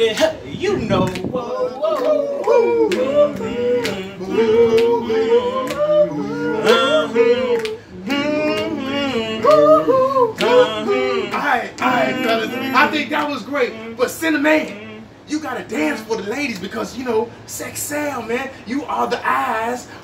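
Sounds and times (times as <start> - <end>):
men singing in harmony: 1.4 - 15.2.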